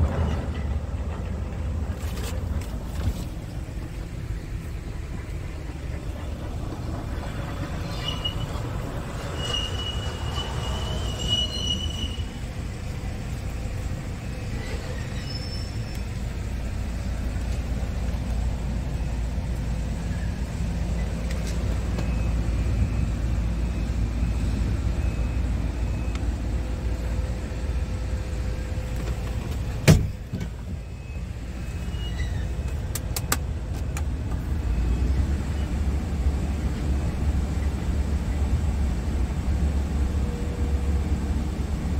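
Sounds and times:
diesel truck engine idling: 0.0 - 9.5, 11.6 - 14.6.

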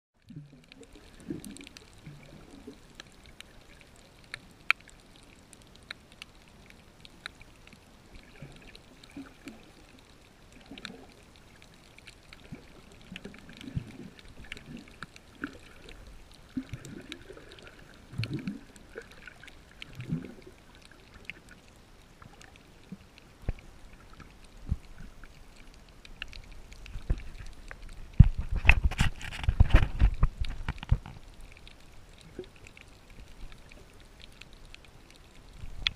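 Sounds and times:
muffled underwater sloshing: 0.2 - 35.9
sharp underwater clicks: 23.4 - 35.9.

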